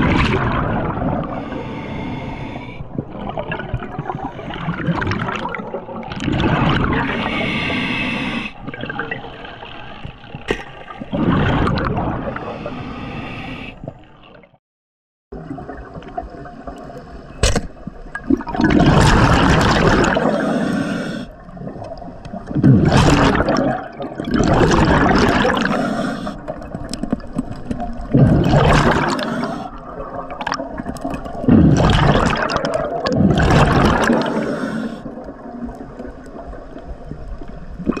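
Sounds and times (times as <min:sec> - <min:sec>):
exhaled bubbles rushing: 0:00.0 - 0:01.5, 0:02.8 - 0:07.4, 0:08.6 - 0:12.8, 0:18.0 - 0:20.6, 0:21.4 - 0:38.0
diver breathing through regulator: 0:01.3 - 0:02.9, 0:07.0 - 0:08.6, 0:12.2 - 0:14.0, 0:20.1 - 0:21.4, 0:25.3 - 0:26.5, 0:28.7 - 0:29.8, 0:33.9 - 0:35.2.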